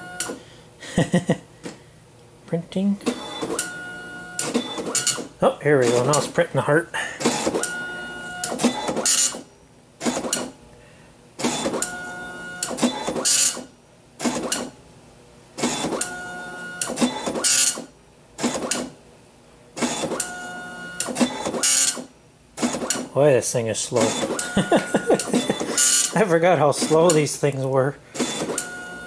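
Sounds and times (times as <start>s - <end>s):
dot-matrix printer head buzzing: 3.0s - 6.3s, 7.2s - 9.4s, 11.4s - 13.6s, 15.6s - 19.0s, 19.8s - 23.1s, 24.0s - 27.4s, 28.2s - 29.0s.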